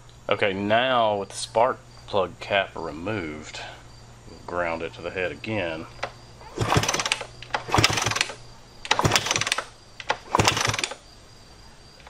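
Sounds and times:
motorcycle engine kicked over: 6.0 - 11.0.

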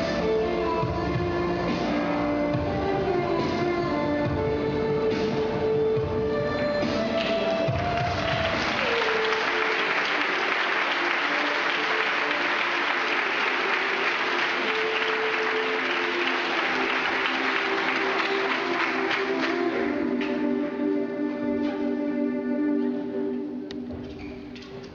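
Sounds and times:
dance music: 0.0 - 23.6
audience applause: 7.2 - 19.8.

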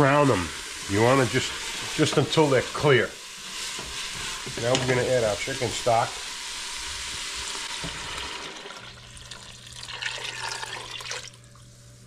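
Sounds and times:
pan sizzling: 0.0 - 12.0
liquid splashing into a pot: 7.2 - 11.6.

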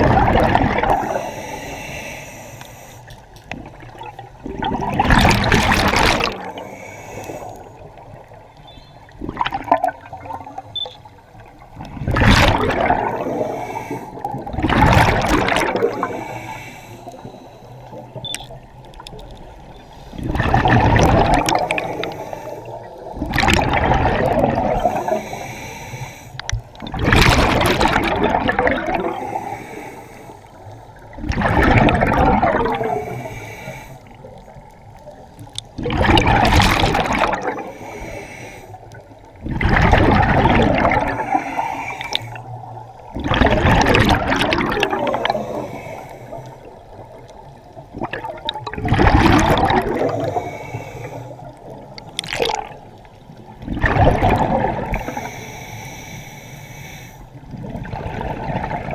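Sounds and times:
gush of exhaled bubbles: 0.0 - 1.6, 3.5 - 8.4, 9.1 - 10.6, 11.7 - 16.6, 20.1 - 25.4, 26.7 - 29.6, 31.1 - 33.3, 35.7 - 38.2, 39.3 - 46.0, 46.6 - 55.3, 57.4 - 58.9
diver breathing through regulator: 0.8 - 3.3, 5.2 - 7.9, 12.1 - 14.6, 15.2 - 18.2, 19.8 - 23.5, 24.4 - 26.9, 28.9 - 30.8, 31.7 - 34.8, 37.2 - 39.0, 39.9 - 42.7, 44.5 - 47.0, 49.2 - 51.7, 54.1 - 57.5.

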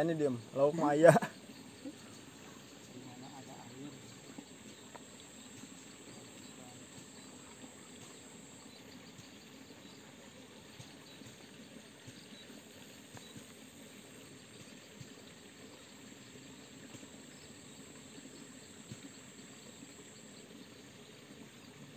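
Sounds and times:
high insect drone: 0.0 - 21.9
low even hiss: 0.0 - 21.9.

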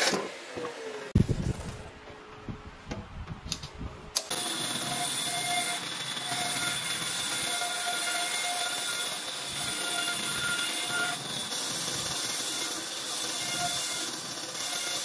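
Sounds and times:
band saw cutting wood: 4.2 - 15.0.

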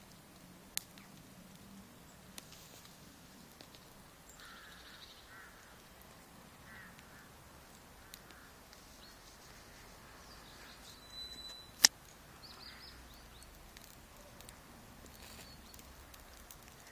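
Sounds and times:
faint bird chirps: 8.1 - 16.0.

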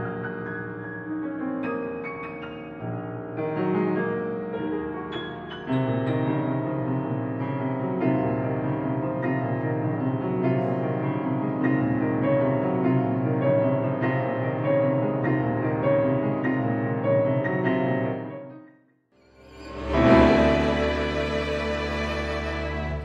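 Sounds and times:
piano notes: 0.0 - 23.0.

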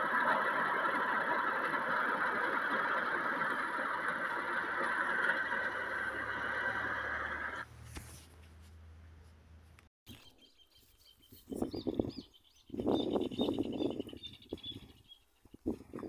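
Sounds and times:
vehicle on dirt road: 0.0 - 7.9.

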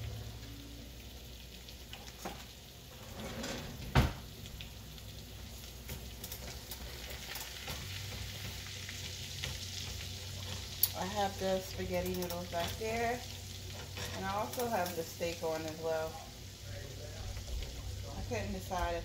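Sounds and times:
butter sizzling in a skillet: 0.0 - 19.0
spatula stirring in pan: 4.7 - 16.6.

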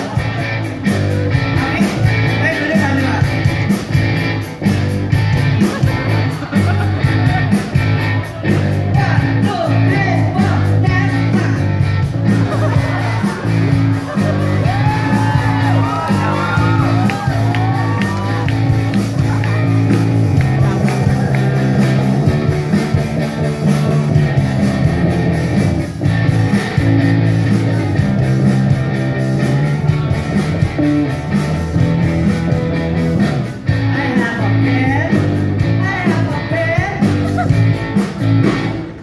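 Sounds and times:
live rock band playing: 0.0 - 39.0
person singing into a microphone: 33.8 - 37.4.

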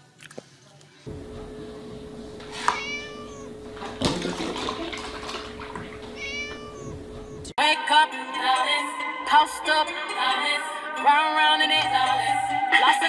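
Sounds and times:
milk pouring into plastic tub: 2.0 - 7.2
kitten meowing: 2.2 - 4.0, 4.6 - 7.5
music: 7.4 - 13.0.

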